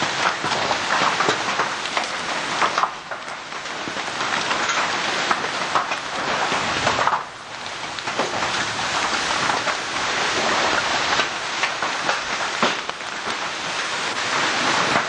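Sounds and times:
heavy rain and hail: 0:00.0 - 0:15.0
sharp hailstone impacts: 0:00.0 - 0:15.0.

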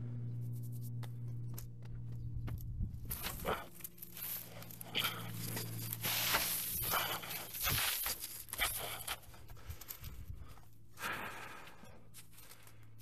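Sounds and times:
footsteps crunching through dry leaves: 0:03.1 - 0:10.1.

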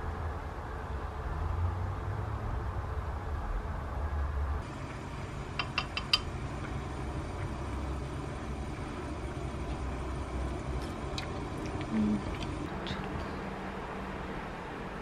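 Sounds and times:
gas stove burner rumble: 0:04.6 - 0:13.4.

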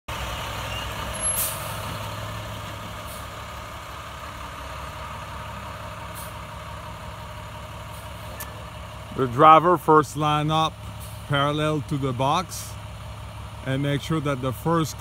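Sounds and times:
bus diesel engine running: 0:00.1 - 0:15.0
air brakes hissing: 0:00.7 - 0:01.9.

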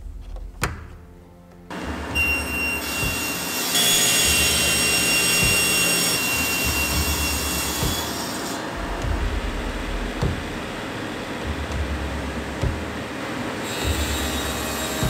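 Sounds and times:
panel saw blade whine: 0:01.8 - 0:10.0
saw cutting through panel: 0:02.2 - 0:09.8, 0:13.6 - 0:15.0.

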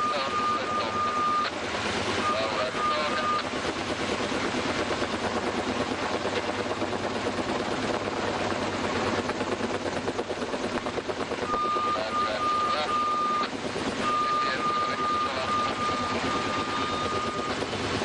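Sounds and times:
high-pitched beeping tone: 0:00.0 - 0:01.5, 0:02.2 - 0:03.4, 0:11.5 - 0:17.6
helicopter rotors chopping: 0:00.0 - 0:18.0.

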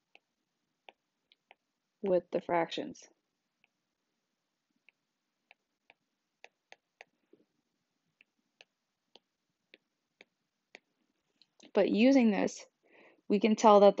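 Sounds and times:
stylus tapping tablet screen: 0:00.0 - 0:02.2, 0:03.5 - 0:04.0, 0:04.7 - 0:11.7.

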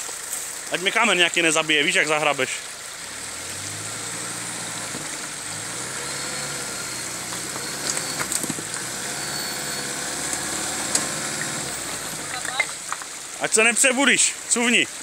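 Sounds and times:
flowing water rushing: 0:00.0 - 0:15.0
truck engine at low revs: 0:02.8 - 0:13.0.

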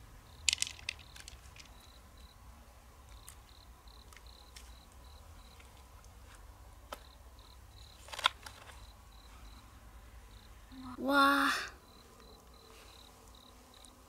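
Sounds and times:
insect chirping: 0:00.0 - 0:02.4, 0:03.0 - 0:05.8, 0:06.7 - 0:14.0
mussel shells clicking: 0:00.4 - 0:01.8.

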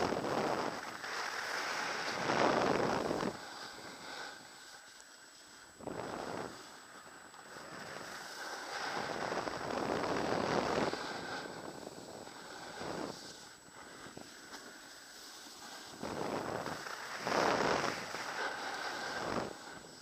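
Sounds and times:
wind on microphone: 0:00.0 - 0:01.1, 0:01.9 - 0:03.5, 0:08.8 - 0:14.2
skis scraping on snow: 0:00.0 - 0:20.0.

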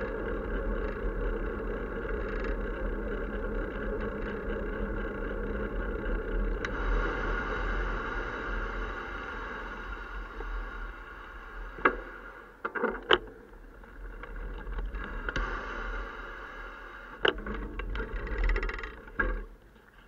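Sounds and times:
wind and tyre rolling noise: 0:00.0 - 0:20.0.

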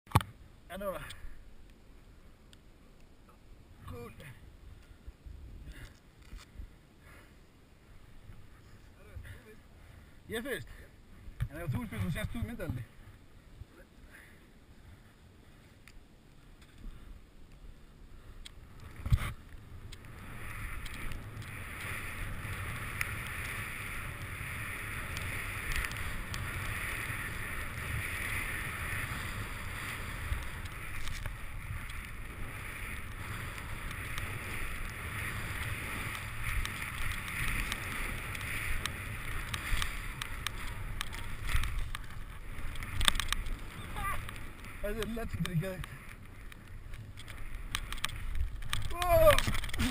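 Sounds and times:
wind rumbling on microphone: 0:14.6 - 0:49.9.

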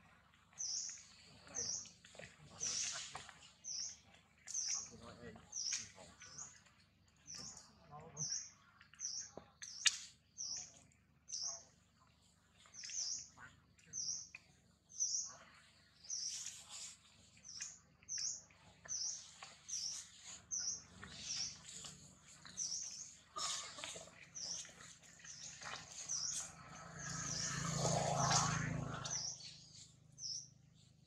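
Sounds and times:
bird chirping: 0:24.3 - 0:31.0.

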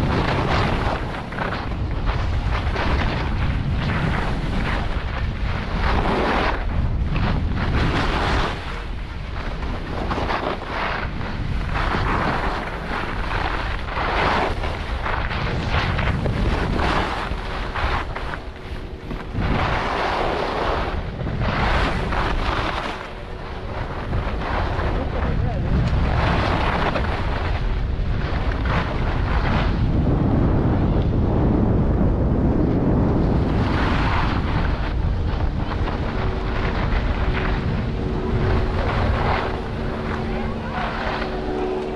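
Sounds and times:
skis scraping on packed snow: 0:00.0 - 0:30.8, 0:32.9 - 0:41.9
wind buffeting microphone: 0:00.0 - 0:41.9.

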